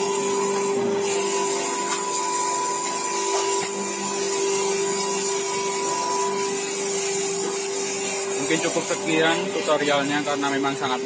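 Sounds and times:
tyre buffing machine humming: 0.0 - 11.0.

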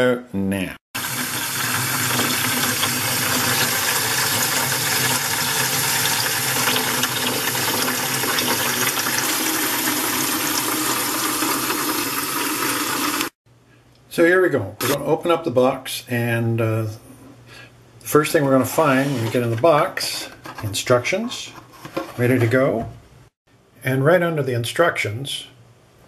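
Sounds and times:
water rushing into a bucket: 1.0 - 13.4.

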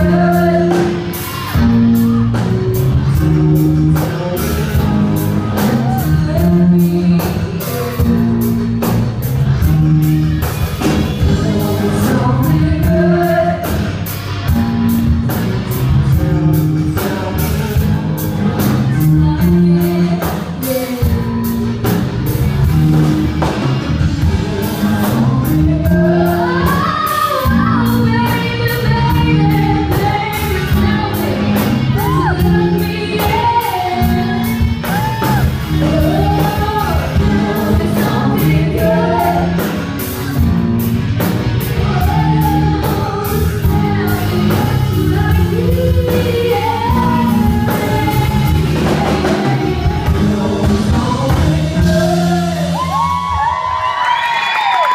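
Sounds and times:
woman singing: 0.0 - 1.1, 11.2 - 14.0, 18.9 - 21.6, 24.2 - 39.8, 41.8 - 53.7
bass: 0.0 - 54.9
drum kit beat: 0.0 - 54.9
electric guitar: 0.0 - 54.9.

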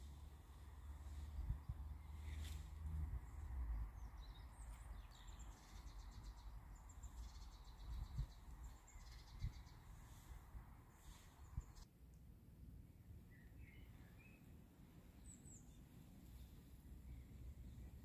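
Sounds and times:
low outdoor rumble: 0.0 - 9.0
songbirds singing: 0.0 - 11.8, 13.0 - 18.0.

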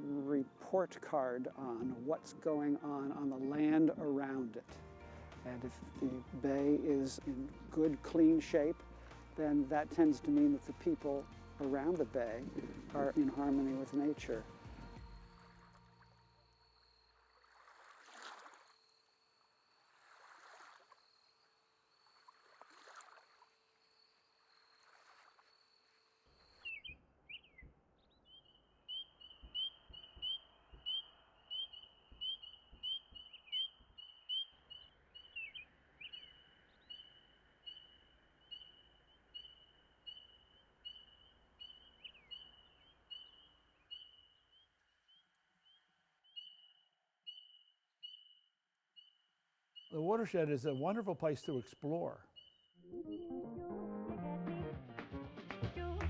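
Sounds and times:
frogs peeping in chorus: 9.8 - 53.2.

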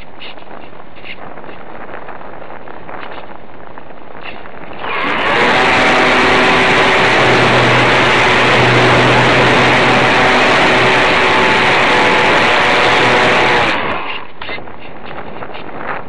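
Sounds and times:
wind rush: 0.0 - 16.0
electric motor and propeller whirring: 4.1 - 16.0.

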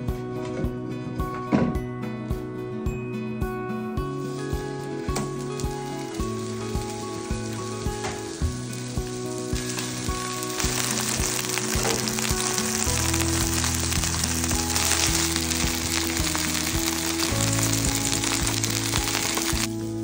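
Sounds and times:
background music with beat: 0.0 - 20.0
fish sizzling in a frying pan: 4.1 - 20.0.

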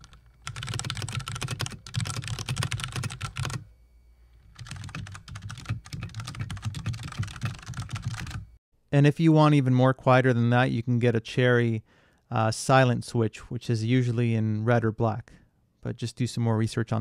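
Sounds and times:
fast typing on mechanical keyboard: 0.0 - 3.6, 4.5 - 8.5
quieter keyboard typing: 0.0 - 3.7, 4.4 - 8.5.

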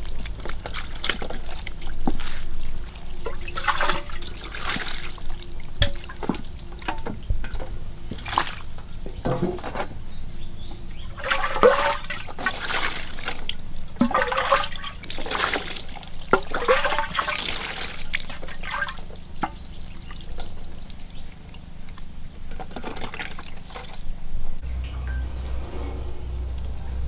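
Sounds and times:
water splashing onto metal tray: 3.2 - 9.8, 11.1 - 20.5.

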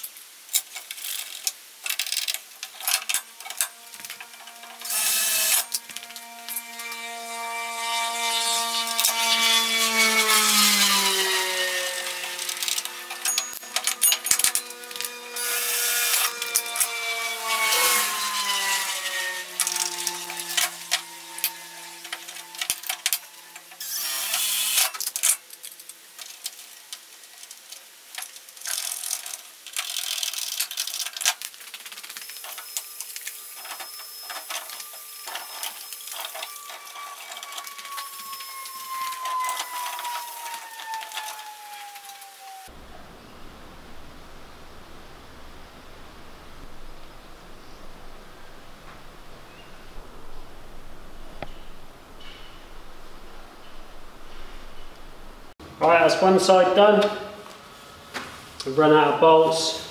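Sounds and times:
power drill running: 3.2 - 25.1, 32.1 - 42.8
hand tools clicking and knocking: 12.0 - 17.0.

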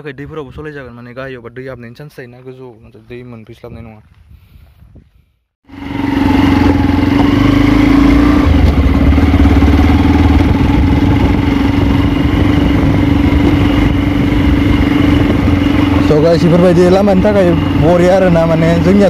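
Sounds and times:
motorcycle engine running: 5.7 - 19.0.

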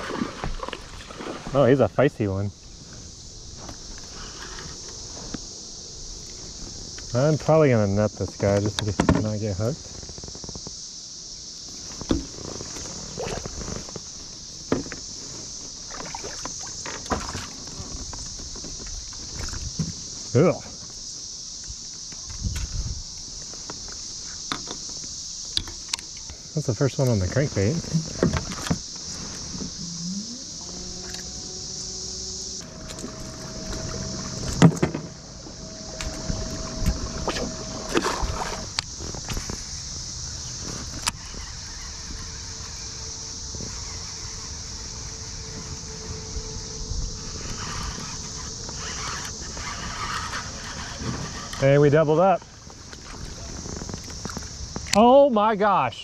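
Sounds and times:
high insect buzz: 0.0 - 56.0
kayak knocks and clicks: 27.8 - 29.7.

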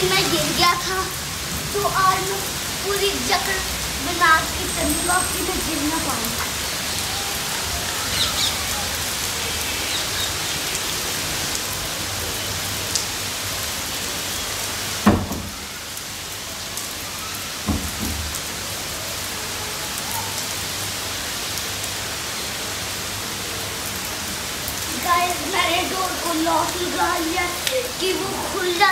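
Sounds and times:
steady rain on pavement and trees: 0.0 - 28.9.

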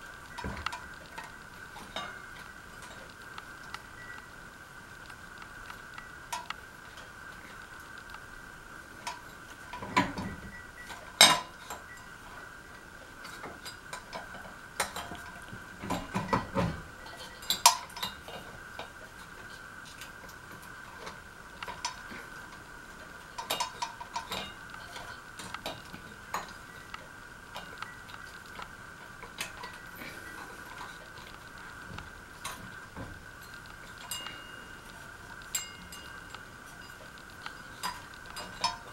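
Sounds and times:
steady high hum: 0.0 - 38.9
metal parts and tools clinking: 33.4 - 38.9.

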